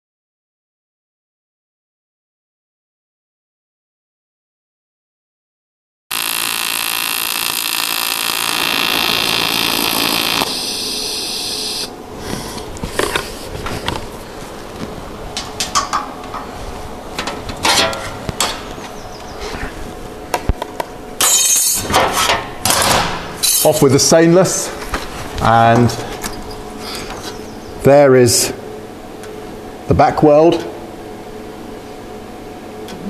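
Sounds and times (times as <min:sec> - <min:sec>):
loud rasping noise: 0:06.1 - 0:11.9
welding arc buzzing hiss: 0:06.1 - 0:13.1, 0:21.2 - 0:21.9, 0:23.4 - 0:23.9.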